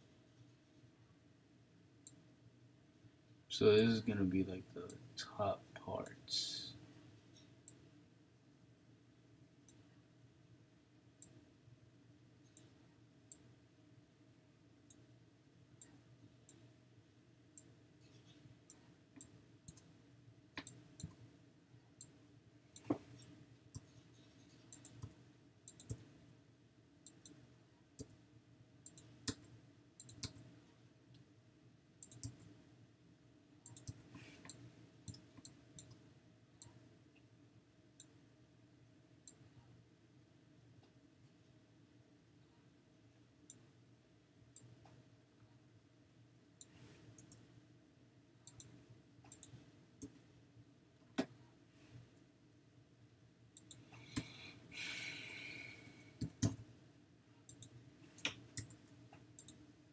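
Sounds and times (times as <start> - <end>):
faint steady hum: 0.0 - 59.9
quiet drawing input clicks: 24.7 - 26.1, 27.0 - 27.4, 28.8 - 30.5, 32.0 - 32.5, 33.6 - 36.0, 48.4 - 50.2, 53.6 - 54.3, 57.5 - 59.6.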